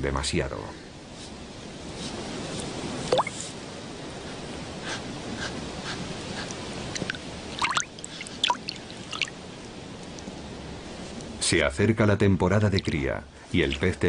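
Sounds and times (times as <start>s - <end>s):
steady soft hiss: 0.0s - 14.0s
water plops and drips: 3.1s - 3.4s, 7.0s - 9.4s.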